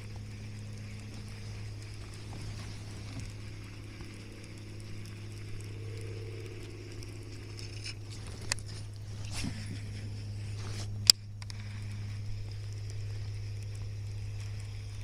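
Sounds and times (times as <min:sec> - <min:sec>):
steady low hum: 0:00.0 - 0:15.0
fishing reel clicks and handling: 0:03.2 - 0:15.0.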